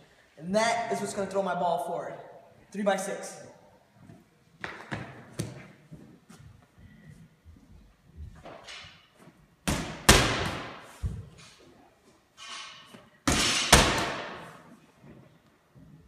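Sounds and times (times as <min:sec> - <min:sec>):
medicine ball slamming against wall: 0:09.7 - 0:10.8.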